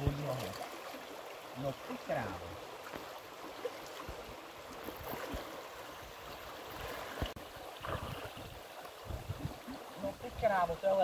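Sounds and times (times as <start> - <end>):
river running over stones: 0.0 - 11.0
splashing in water: 2.8 - 5.9, 6.6 - 10.0.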